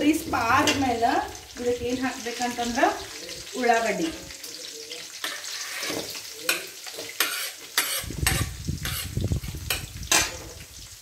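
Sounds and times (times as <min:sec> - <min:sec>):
oil sizzling in pan: 0:00.0 - 0:11.0
spoon clinking and scraping: 0:04.0 - 0:10.5.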